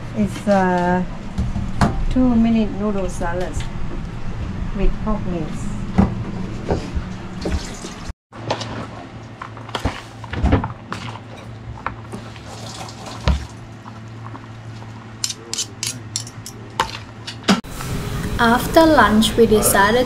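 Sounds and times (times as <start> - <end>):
steady low hum: 0.0 - 8.1
water at a sink: 7.3 - 8.1, 10.9 - 14.0.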